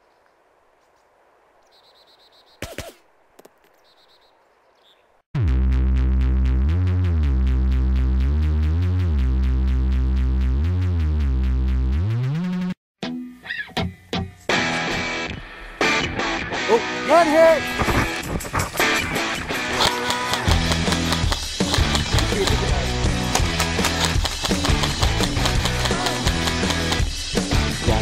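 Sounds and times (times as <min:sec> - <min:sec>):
electronic music with synth bass: 0:05.4 - 0:12.8.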